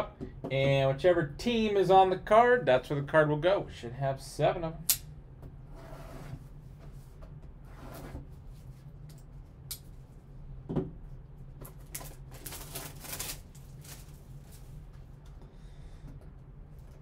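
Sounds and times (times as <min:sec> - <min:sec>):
steady low hum: 0:00.0 - 0:17.0
plastic wrap crinkling: 0:11.6 - 0:14.9.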